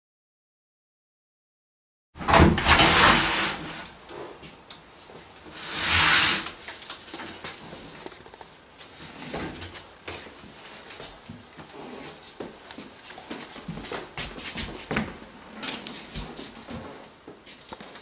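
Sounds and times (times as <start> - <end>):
door scraping open: 2.2 - 4.4, 5.5 - 6.6
knocks and shuffling movement: 6.6 - 18.0.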